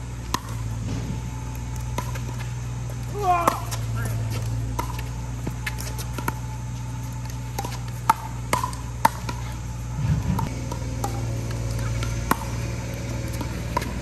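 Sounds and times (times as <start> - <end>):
steady low hum: 0.0 - 14.0
ball bouncing on concrete: 0.2 - 14.0
low rumble: 3.7 - 14.0
pickleball paddle pops: 7.6 - 9.4.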